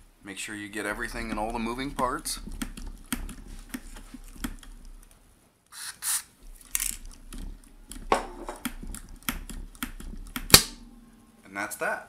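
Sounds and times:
aerosol can spraying: 5.7 - 6.3.

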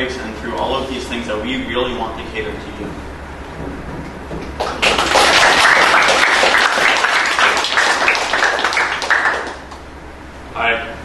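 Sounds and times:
audience applauding: 4.4 - 9.9.

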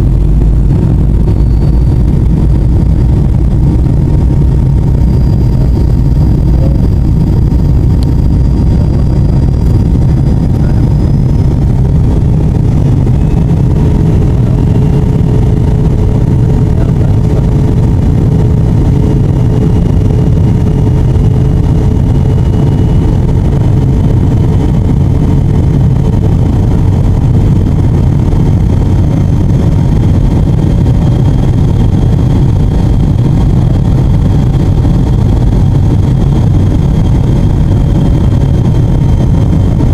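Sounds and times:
aircraft cabin drone: 0.0 - 39.9
faint drifting whines: 0.0 - 39.9.

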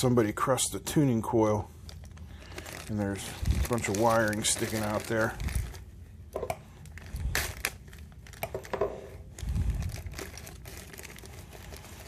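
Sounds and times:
plastic bag crinkling: 1.9 - 5.9, 6.6 - 12.0.

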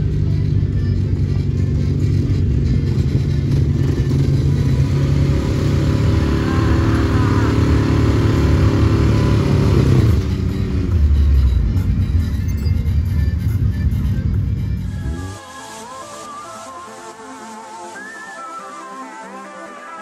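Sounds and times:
off-road vehicle engines at low speed: 0.0 - 15.4.

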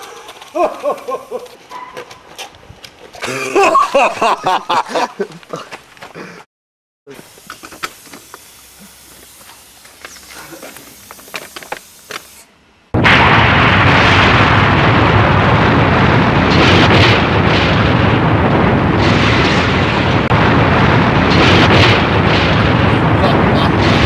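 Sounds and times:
burning fuse hissing: 0.0 - 1.6, 7.1 - 12.5
explosion blast: 12.9 - 24.0
building collapsing rumble: 13.0 - 24.0.

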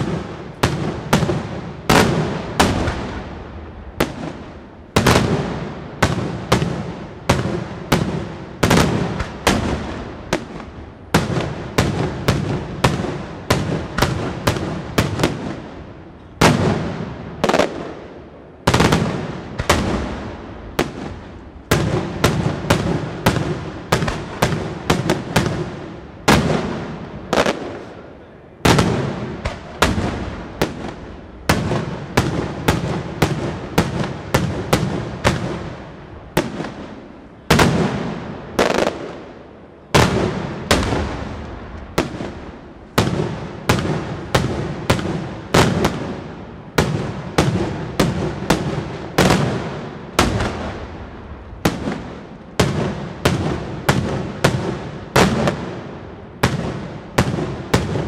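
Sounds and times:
firework shells exploding: 16.4 - 58.0.

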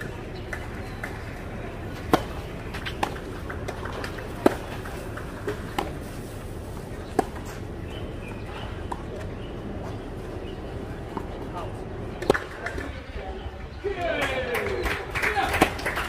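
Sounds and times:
low background noise: 0.0 - 16.0
tennis racket hitting ball: 1.9 - 6.2.

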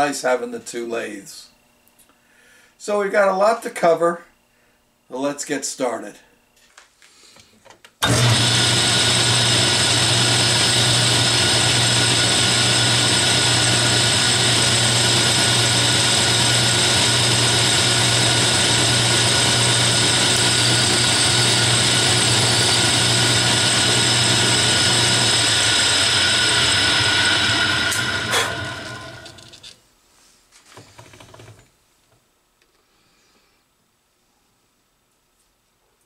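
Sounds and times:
metal lathe humming and whining: 8.0 - 29.7.

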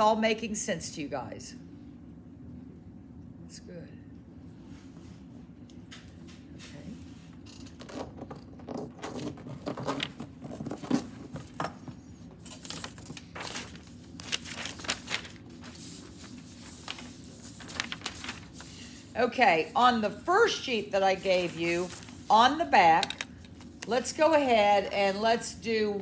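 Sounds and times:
paper rustling and crinkling: 8.7 - 19.7, 21.1 - 22.6.

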